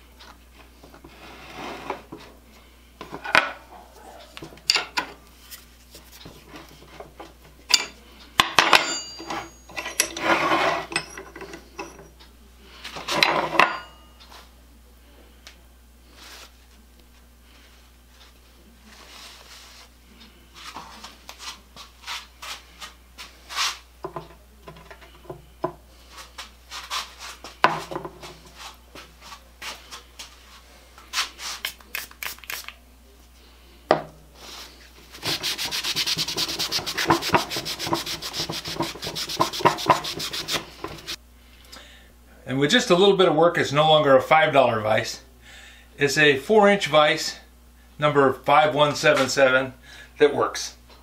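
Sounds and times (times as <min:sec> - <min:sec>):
cloth rag rubbing metal: 0:35.1 - 0:41.2.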